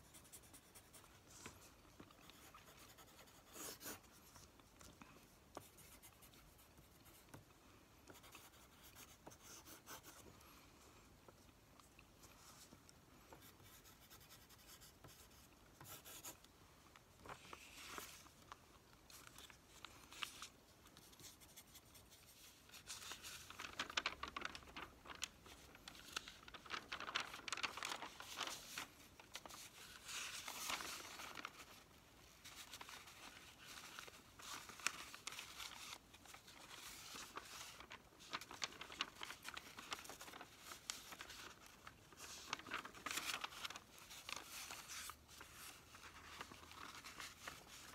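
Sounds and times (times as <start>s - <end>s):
paper flyers rustling and crinkling: 16.3s - 47.9s.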